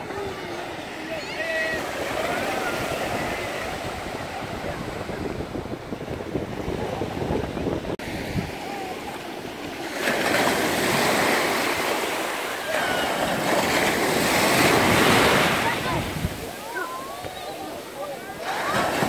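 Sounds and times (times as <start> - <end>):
waves washing on sandy beach: 0.0 - 19.0.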